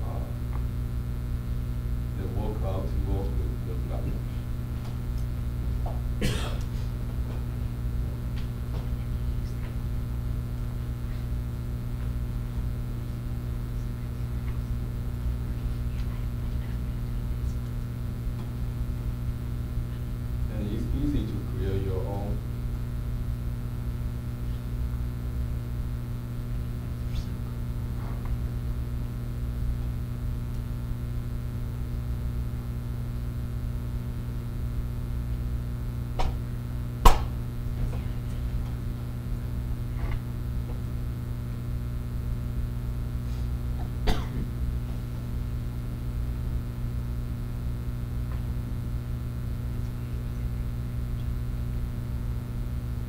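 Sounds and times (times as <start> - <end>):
low hum of a classroom: 0.0 - 0.7, 1.6 - 23.4, 26.4 - 30.0, 37.1 - 46.3
audience coughing: 6.2 - 6.9, 44.0 - 44.5
sharp knock: 37.0 - 37.3.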